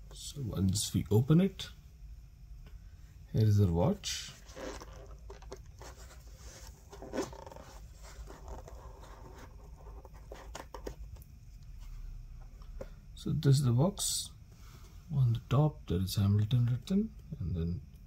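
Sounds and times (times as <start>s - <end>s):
cardboard box insert rustling: 4.3s - 11.0s
handling sound: 4.3s - 11.2s.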